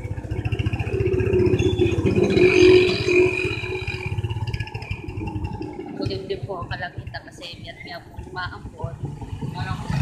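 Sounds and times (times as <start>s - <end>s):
high steady whine: 0.0s - 9.9s
vehicle engine pulsing: 0.0s - 10.0s.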